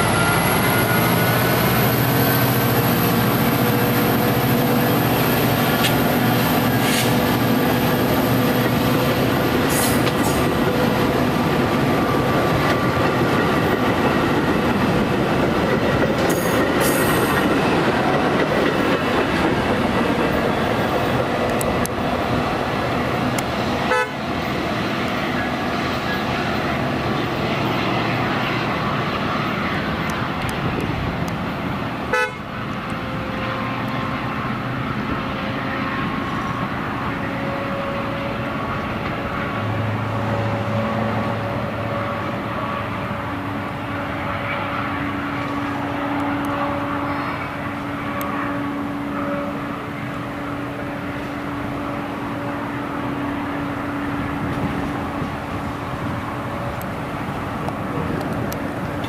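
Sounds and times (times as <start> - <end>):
train wheels rumbling on rail: 0.0 - 59.0.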